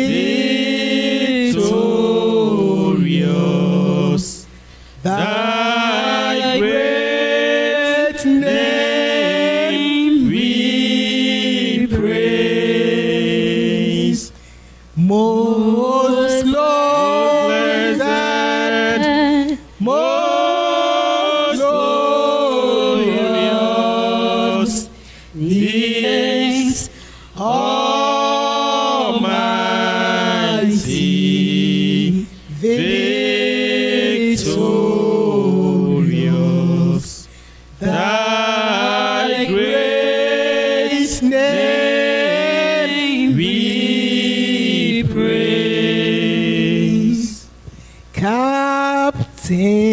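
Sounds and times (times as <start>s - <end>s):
woman singing a hymn: 15.0s - 20.0s.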